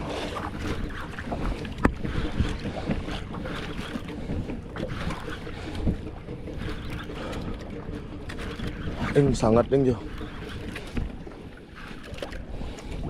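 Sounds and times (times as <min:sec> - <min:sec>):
boat engine running: 0:00.0 - 0:13.0
wind buffeting microphone: 0:00.0 - 0:13.0.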